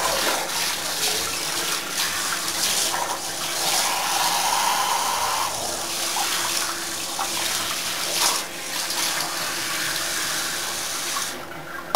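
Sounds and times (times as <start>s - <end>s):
shower water splashing: 0.0s - 11.9s.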